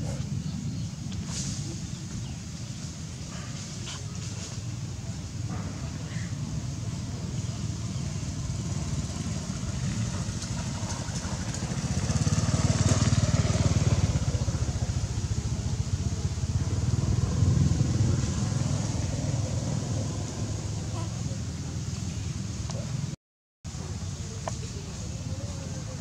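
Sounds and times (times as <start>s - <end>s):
vehicle engine rumble: 0.0s - 26.0s.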